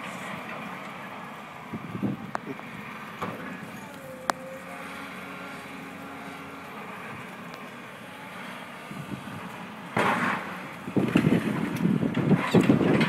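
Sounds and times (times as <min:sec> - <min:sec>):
excavator engine drone: 0:00.0 - 0:13.0
building crashing: 0:09.9 - 0:13.0.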